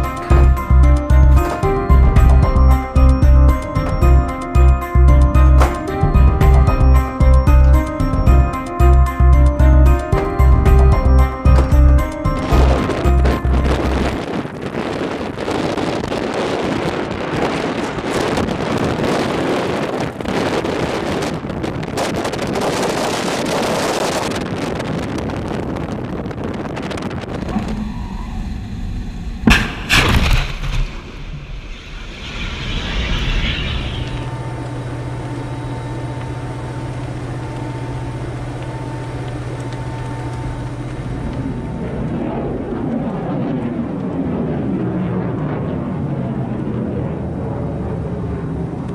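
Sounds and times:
steady low hum: 0:00.0 - 0:24.5, 0:26.1 - 0:48.9
sharp bang: 0:29.4 - 0:34.3.

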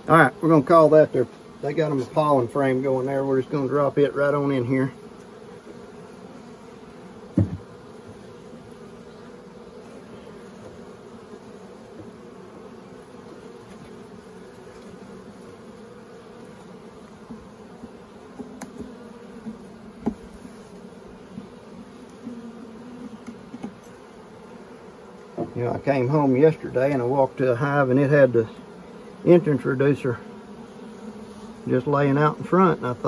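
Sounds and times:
bees humming: 0:00.0 - 0:33.0
wooden frame knock: 0:07.4 - 0:07.7.

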